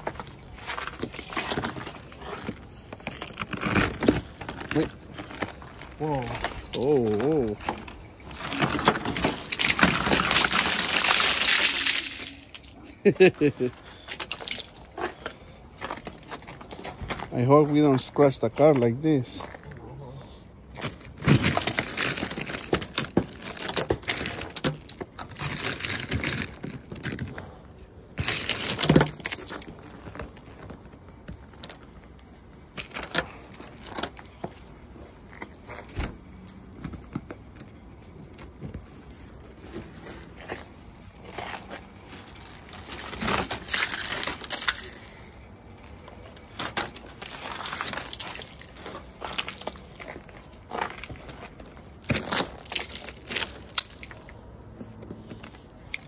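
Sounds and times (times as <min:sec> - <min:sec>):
ice cracking and breaking: 0:00.0 - 0:18.5, 0:20.7 - 0:36.2, 0:38.4 - 0:54.4
ice pieces clattering on concrete: 0:06.8 - 0:14.9, 0:42.7 - 0:45.2.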